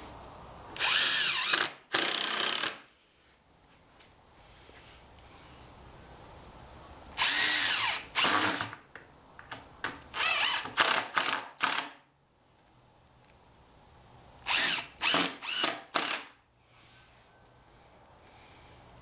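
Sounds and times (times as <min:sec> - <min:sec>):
impact driver driving screws: 0:00.8 - 0:02.8, 0:07.2 - 0:08.8, 0:10.1 - 0:12.0, 0:14.5 - 0:16.4.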